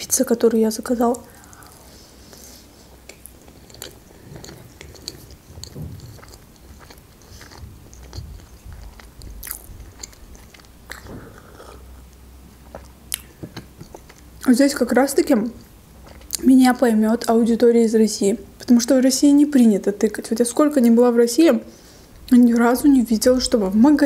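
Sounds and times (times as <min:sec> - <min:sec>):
close chewing mouth sounds: 0:01.0 - 0:14.5, 0:15.6 - 0:17.4.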